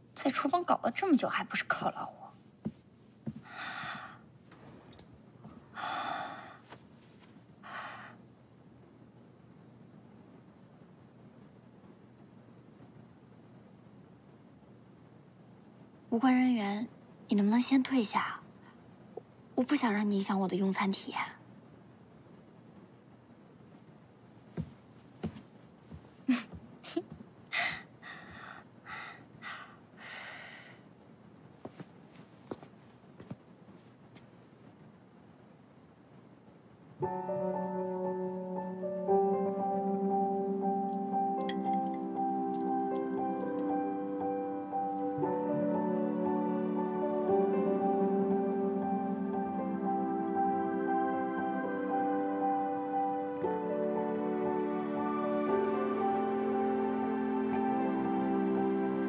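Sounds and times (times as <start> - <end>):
person breathing sigh-like: 5.7 - 6.6.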